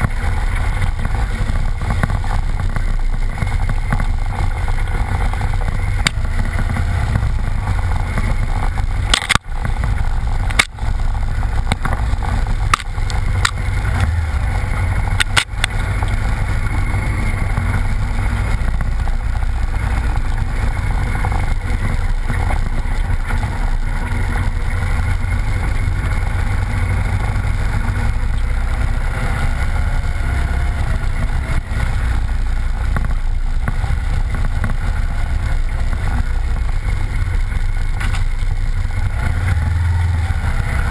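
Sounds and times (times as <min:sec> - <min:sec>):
tyre noise on dirt: 0:00.0 - 0:40.9
vehicle engine running: 0:00.0 - 0:40.9.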